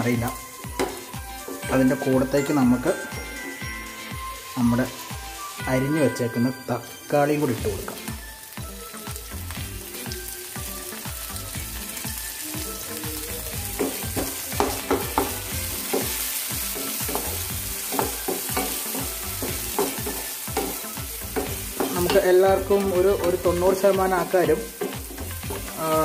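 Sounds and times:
onion sizzling in frying pan: 0.0 - 26.0.

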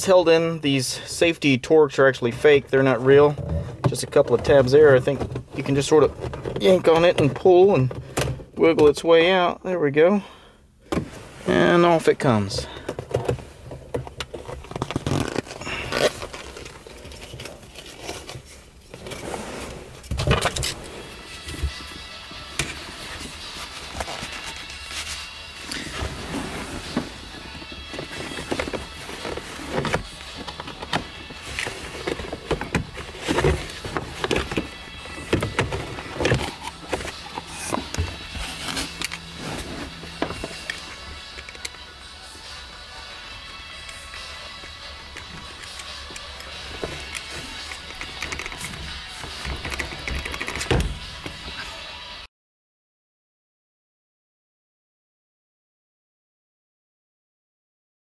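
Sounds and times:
rubber boot rustling and rubbing: 11.0 - 12.4, 14.6 - 22.0, 22.7 - 41.0.

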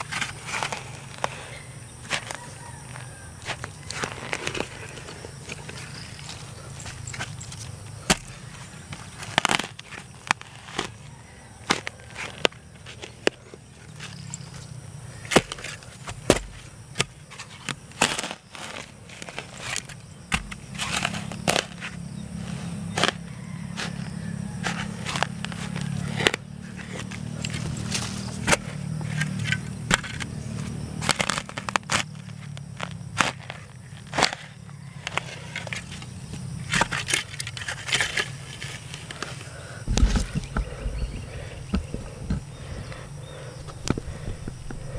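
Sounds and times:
digging tool striking soil: 2.0 - 11.0, 15.2 - 22.0, 22.9 - 39.2.

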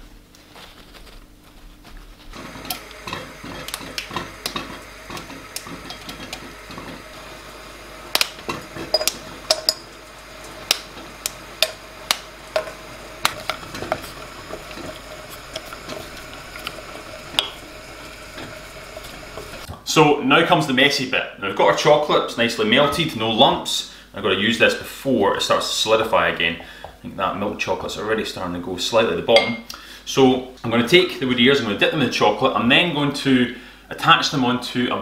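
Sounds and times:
spoon clinking against glass bowl: 8.9 - 9.9.

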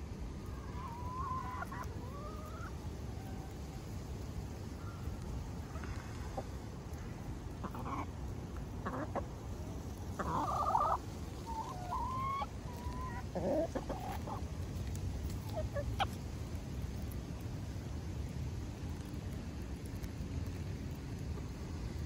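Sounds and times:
hens clucking: 0.6 - 3.4, 7.5 - 8.2, 8.8 - 9.4, 10.1 - 16.2.

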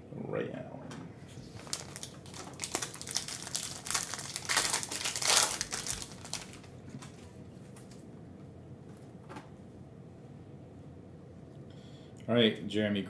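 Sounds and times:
foil pack crinkling as torn open: 1.5 - 7.2.

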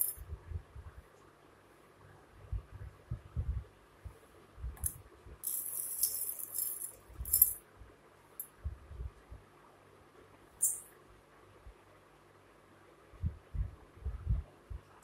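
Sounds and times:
metal bowls clinking: 5.4 - 7.6.

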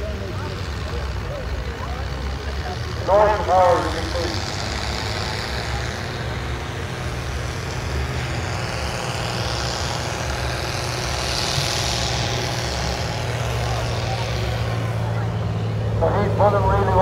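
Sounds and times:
other tractor engines running: 0.0 - 17.0
tractor engine under load: 0.0 - 17.0.

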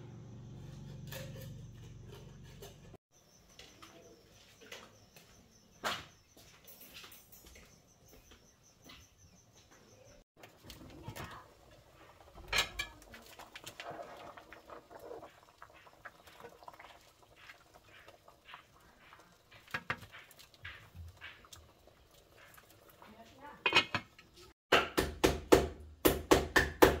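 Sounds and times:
wood fire crackling: 10.4 - 24.3.

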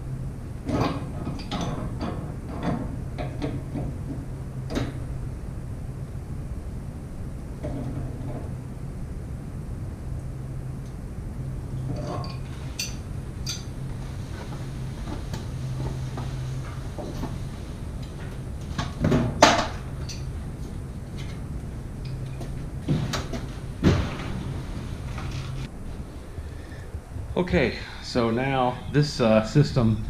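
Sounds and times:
steady low hum: 0.0 - 30.0
equipment knocks and clunks: 14.3 - 21.4, 22.2 - 25.7.

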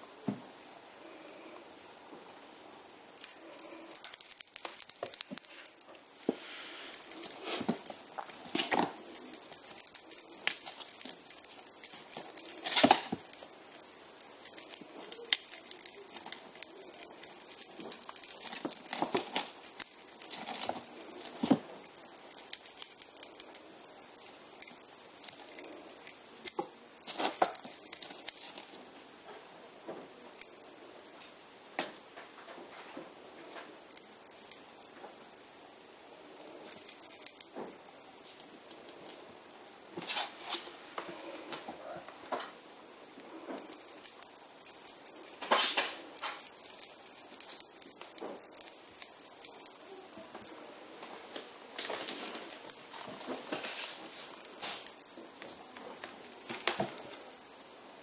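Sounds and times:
small jingle bell jingling: 3.2 - 28.8, 30.2 - 31.0, 33.9 - 35.5, 36.5 - 38.1, 42.6 - 57.7.

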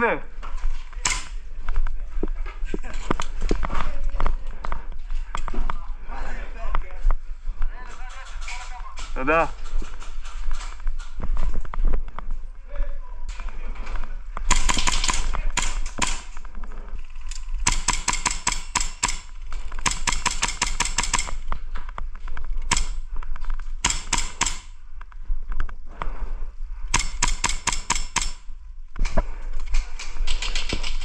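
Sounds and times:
airsoft gun firing bursts: 14.5 - 16.3, 17.6 - 21.5, 23.8 - 24.8, 26.9 - 28.5.

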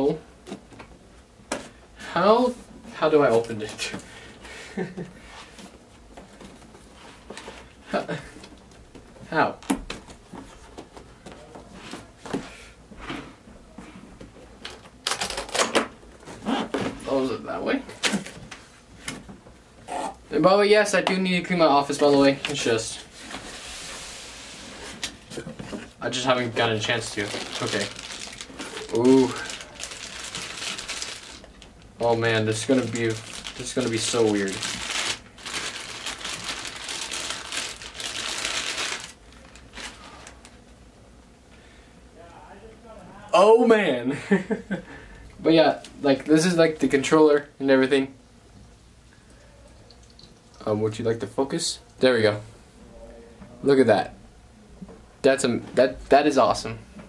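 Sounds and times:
plastic bag crinkling: 26.1 - 40.5.

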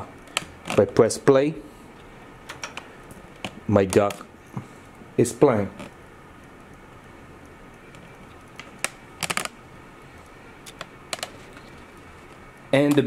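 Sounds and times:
low room hiss: 0.0 - 13.0
small sharp clicks: 7.4 - 9.6.

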